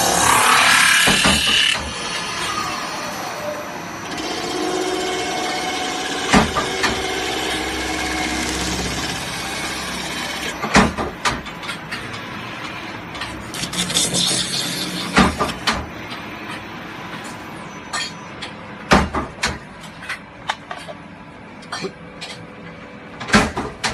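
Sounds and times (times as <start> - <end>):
lathe hum with whining tone: 0.0 - 17.8.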